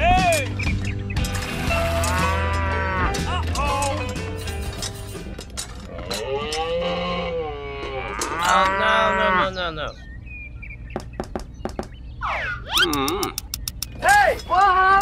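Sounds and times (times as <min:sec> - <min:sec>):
cow mooing: 0:01.9 - 0:03.3, 0:05.9 - 0:09.6.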